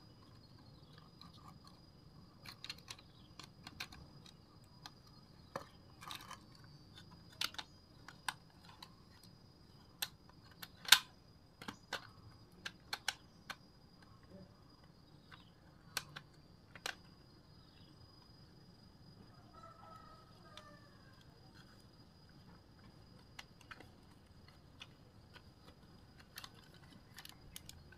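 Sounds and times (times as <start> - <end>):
plastic toy clicks and taps: 10.0 - 14.1.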